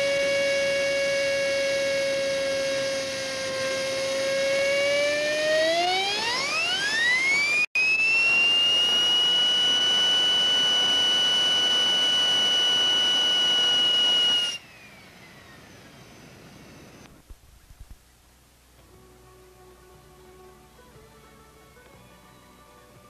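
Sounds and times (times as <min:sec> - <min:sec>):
model jet turbine whining: 0:00.0 - 0:17.4.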